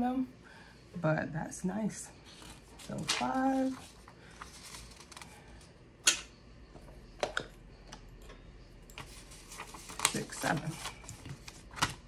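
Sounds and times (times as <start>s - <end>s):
paper rustling: 2.3s - 5.4s, 9.0s - 12.0s.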